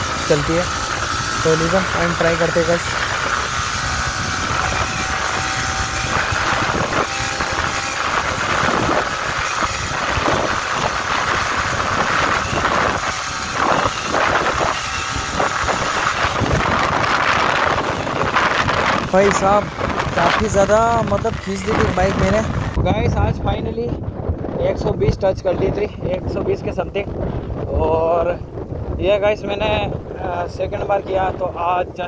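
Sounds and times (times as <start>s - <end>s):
motorcycle engine at high revs: 0.0s - 22.8s
wind noise on microphone: 0.0s - 32.0s.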